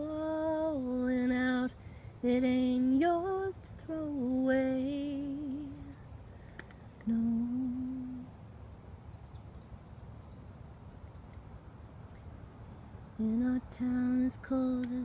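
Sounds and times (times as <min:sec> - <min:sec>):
woman singing unaccompanied: 0:00.0 - 0:06.1, 0:07.0 - 0:08.4, 0:13.2 - 0:15.0
low background rumble: 0:00.0 - 0:15.0.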